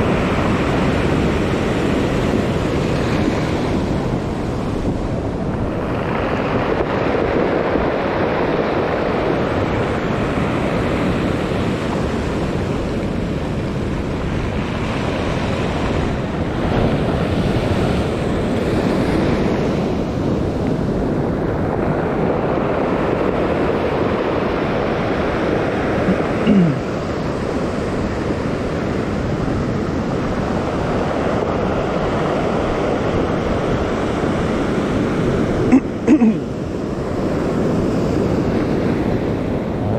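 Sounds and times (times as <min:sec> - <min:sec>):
surf on pebble beach: 0:00.0 - 0:39.9
wind buffeting microphone: 0:00.0 - 0:39.9.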